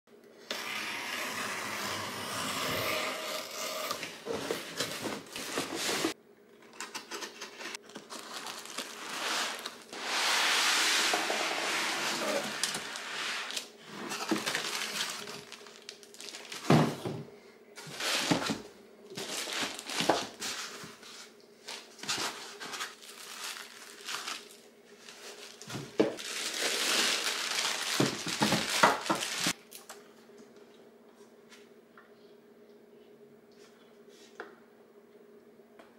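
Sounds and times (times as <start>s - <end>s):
cardboard and foam rustling: 4.0s - 6.2s, 7.7s - 17.2s, 17.8s - 29.6s
plastic wrap crinkling: 7.7s - 10.1s, 12.0s - 16.9s, 17.8s - 30.0s
packing tape peeled off box: 7.9s - 10.1s.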